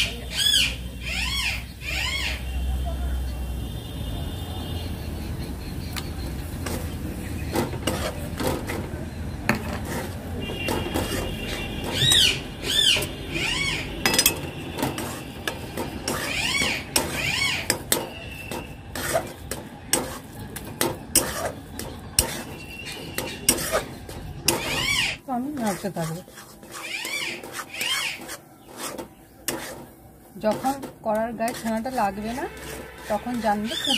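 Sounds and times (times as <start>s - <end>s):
metal spatula scraping a pan: 6.4s - 33.9s
high animal calls: 16.1s - 17.7s, 26.7s - 28.3s.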